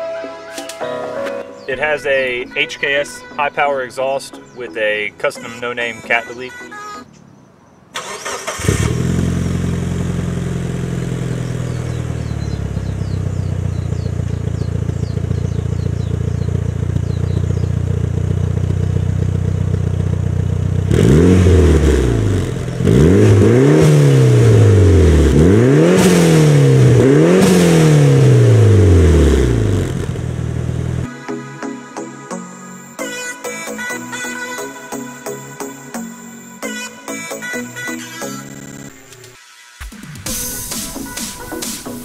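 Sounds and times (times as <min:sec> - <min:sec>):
car engine idling and revving: 0:07.1 - 0:31.1.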